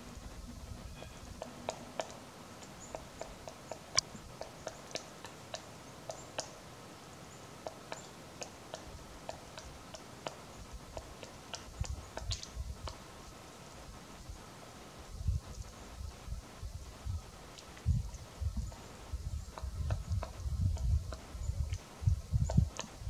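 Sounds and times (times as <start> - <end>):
woodpecker knocking on wood: 1.4 - 6.6, 7.6 - 13.0.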